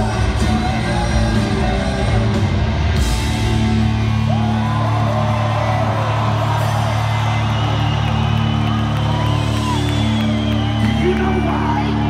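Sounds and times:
rock band playing live: 0.0 - 12.0
people whooping and yelling: 3.8 - 12.0.

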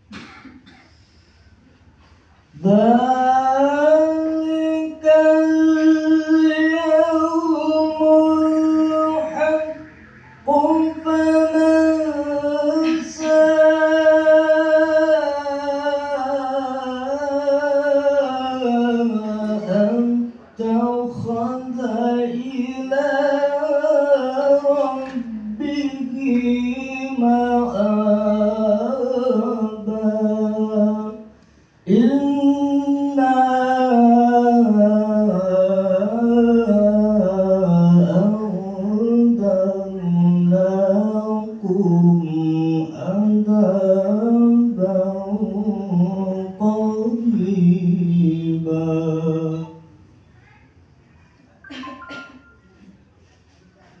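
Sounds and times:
man reciting melodically: 2.2 - 50.0.

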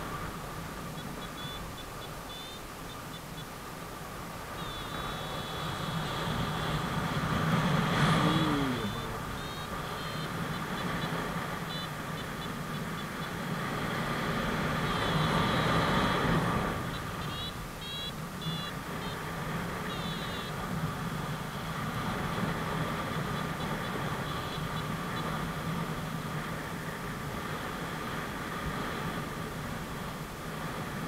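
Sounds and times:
variometer high beeps: 1.0 - 3.2, 4.6 - 6.8, 8.2 - 13.3, 16.9 - 18.8.

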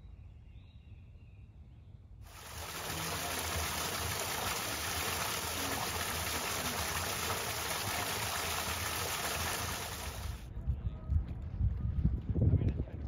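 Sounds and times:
running water: 2.3 - 10.4.

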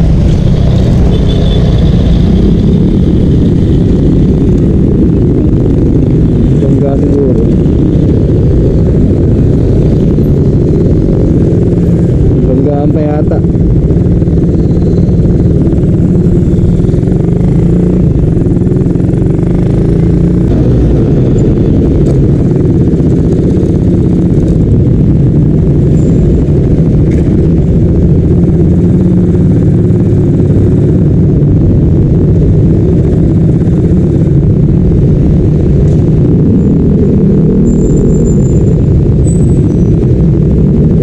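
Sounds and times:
motorcycle engine rumble: 0.0 - 41.0.

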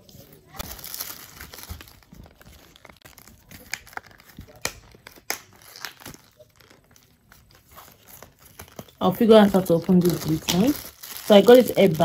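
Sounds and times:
plastic packaging crackling: 0.0 - 12.0.

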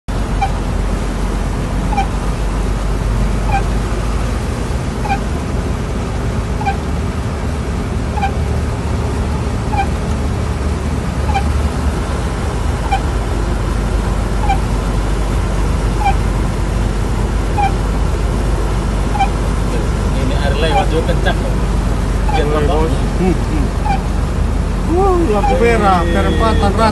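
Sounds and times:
car running noise: 0.0 - 26.9
heavy rain on a car: 0.1 - 26.9
short rising squeak: 0.3 - 0.6, 1.9 - 2.2, 3.4 - 3.8, 5.0 - 5.3, 6.6 - 6.8, 8.1 - 8.5, 9.7 - 10.0, 11.3 - 11.7, 12.8 - 13.1, 14.4 - 14.7, 16.0 - 16.2, 17.6 - 17.8, 19.1 - 19.4, 23.8 - 24.1.

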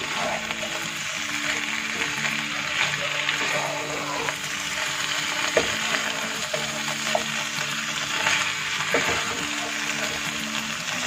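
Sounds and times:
chicken sizzling in pan: 0.0 - 11.0
spatula knocking pan: 5.4 - 7.6.

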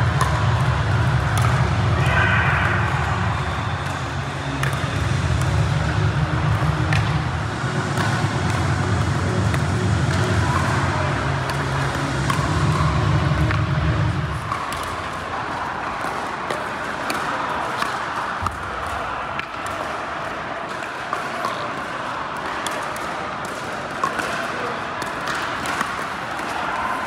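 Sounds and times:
loud low hum: 0.0 - 14.6
large hall noise: 0.0 - 27.0.

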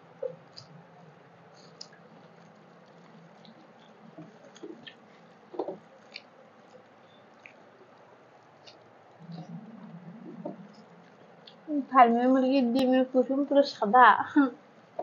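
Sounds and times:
wet squishing of food by hand: 0.0 - 11.7
mouth clicks chewing: 8.6 - 11.7.

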